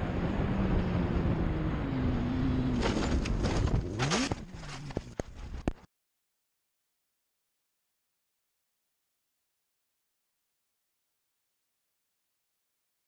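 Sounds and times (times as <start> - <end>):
motorcycle crashing knocks and scraping: 2.7 - 5.4.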